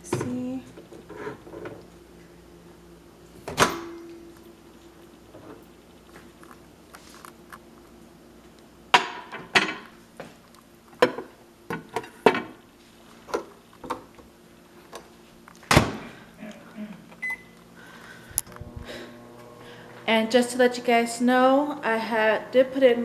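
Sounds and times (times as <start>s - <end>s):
microwave door shutting: 3.4s - 4.1s
keypad beep: 17.2s - 17.5s.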